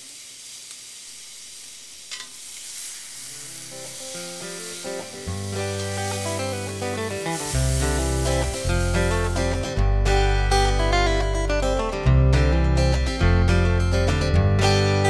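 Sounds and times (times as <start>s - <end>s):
steaks sizzling on grill: 0.0s - 9.8s
guitar music: 3.1s - 15.0s
bass line: 5.3s - 15.0s.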